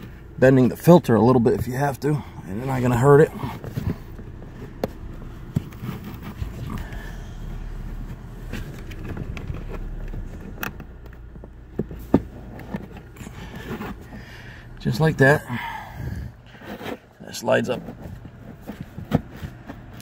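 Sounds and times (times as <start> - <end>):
filter scraping against plastic: 2.6 - 15.4.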